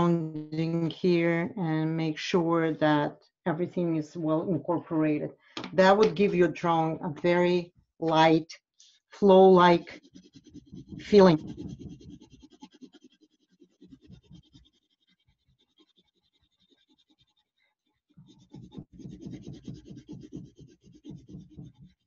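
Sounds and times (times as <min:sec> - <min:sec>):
pencil scratching on paper: 0:09.2 - 0:22.0.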